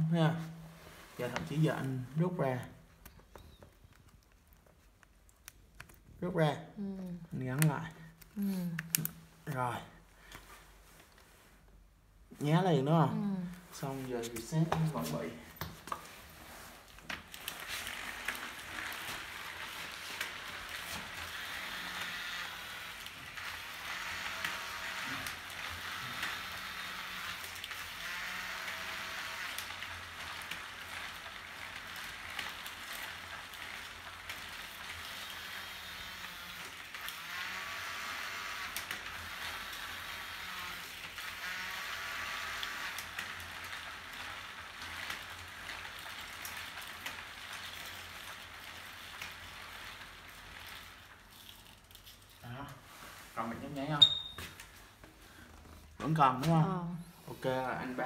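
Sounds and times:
bicycle wheel whirring: 0:00.0 - 0:04.8, 0:05.4 - 0:11.7, 0:12.8 - 0:58.0.

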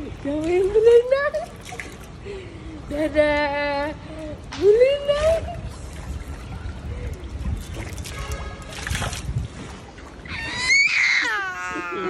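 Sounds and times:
baby squealing: 0:10.3 - 0:12.0.

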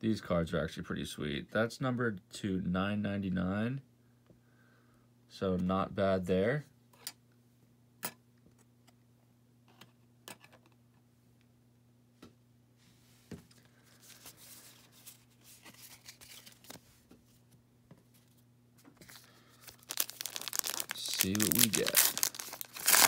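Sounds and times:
cards rustling: 0:13.5 - 0:17.1, 0:18.1 - 0:23.0.

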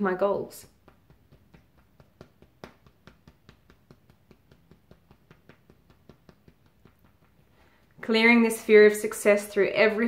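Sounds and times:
fingertips tapping on ribcage: 0:00.6 - 0:08.1.

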